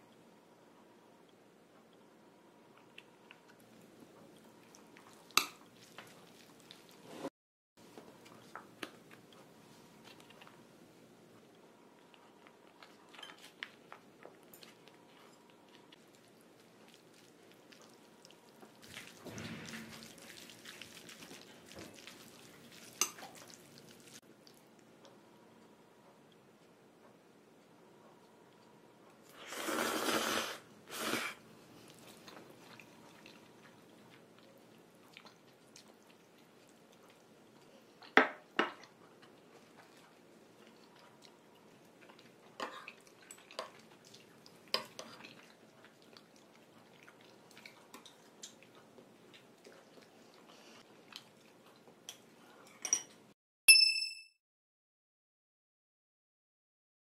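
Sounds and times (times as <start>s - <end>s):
cutlery clinking against plates: 52.1s - 54.0s.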